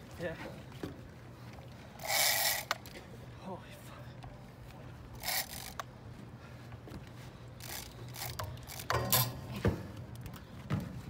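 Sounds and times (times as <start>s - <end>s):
fishing reel gears clicking: 2.0s - 3.0s, 5.2s - 5.9s, 7.6s - 9.3s.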